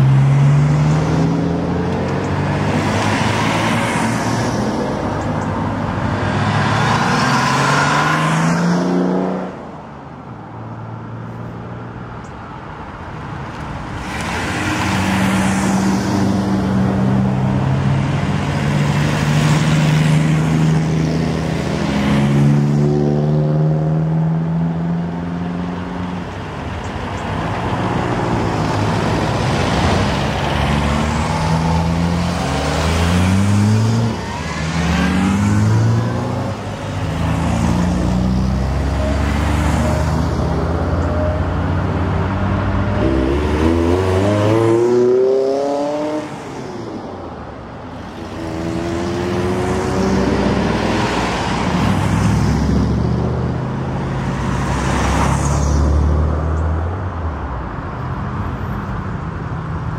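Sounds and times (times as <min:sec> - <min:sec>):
cars driving past: 0:00.0 - 0:59.9
engines revving: 0:13.9 - 0:47.2, 0:47.9 - 0:56.4.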